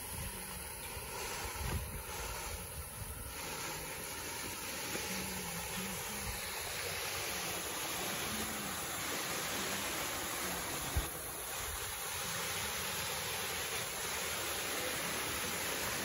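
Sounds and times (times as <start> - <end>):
water rushing over weir: 0.0 - 16.0.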